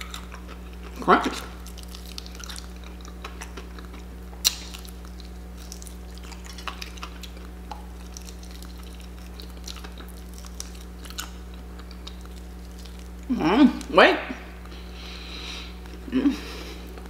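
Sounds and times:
fried chicken crust crackling: 0:00.0 - 0:13.3.

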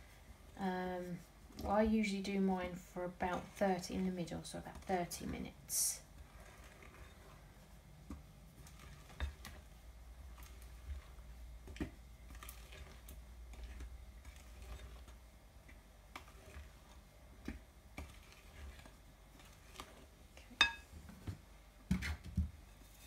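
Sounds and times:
spoon tapping glass bowl: 0:20.6 - 0:20.8.

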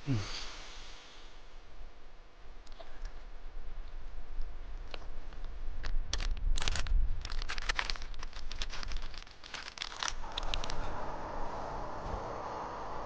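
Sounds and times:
steady hiss: 0:00.0 - 0:01.8, 0:10.2 - 0:13.0
foil sachet tearing and crinkling: 0:06.1 - 0:10.6.

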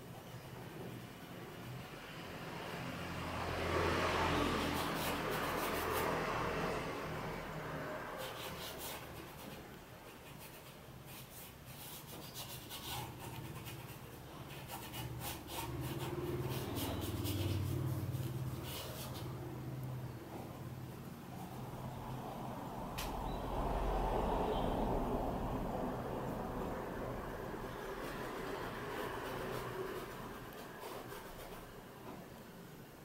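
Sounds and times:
vehicle passing: 0:01.6 - 0:10.1, 0:12.6 - 0:32.8
paintbrush scrubbing on canvas: 0:04.4 - 0:06.5, 0:07.8 - 0:19.6, 0:27.6 - 0:31.9.

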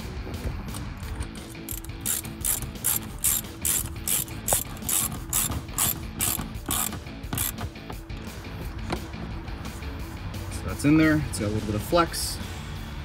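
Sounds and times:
hand ratchet clicking: 0:00.7 - 0:08.0.

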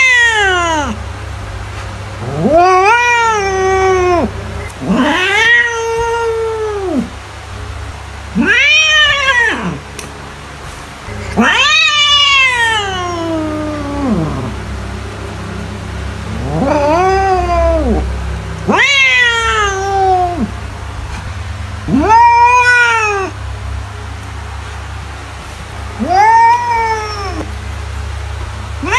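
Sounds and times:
cat yowling meows: 0:00.0 - 0:01.0, 0:02.2 - 0:07.1, 0:08.3 - 0:09.8, 0:11.1 - 0:14.7, 0:16.3 - 0:20.6, 0:21.8 - 0:23.4, 0:26.0 - 0:27.5.

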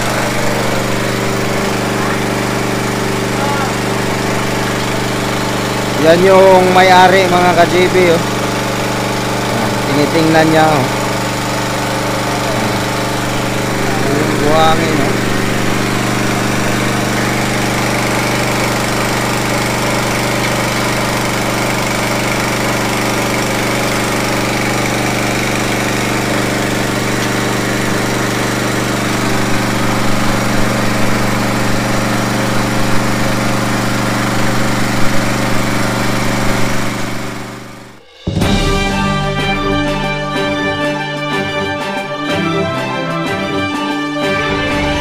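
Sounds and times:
motor-driven water pump running: 0:00.0 - 0:42.5, 0:44.2 - 0:45.0
water gushing from pipe: 0:15.1 - 0:37.5.

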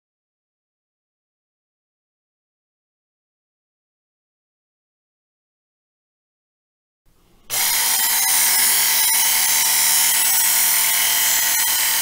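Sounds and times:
belt sharpener grinding knife: 0:07.5 - 0:12.0
motor whine: 0:07.5 - 0:12.0.

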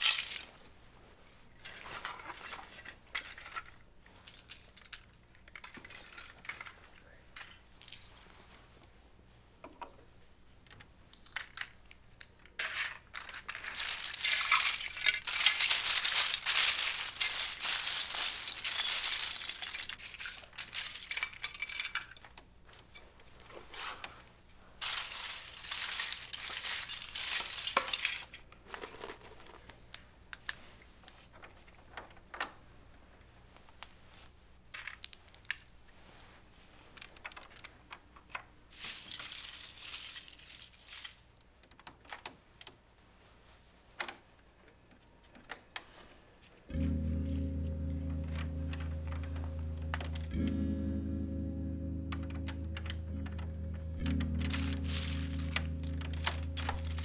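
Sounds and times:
plastic bricks clattering: 0:00.0 - 0:00.6, 0:01.7 - 0:08.2, 0:11.2 - 0:22.4, 0:24.8 - 0:29.7, 0:38.7 - 0:41.3, 0:52.1 - 0:57.0.

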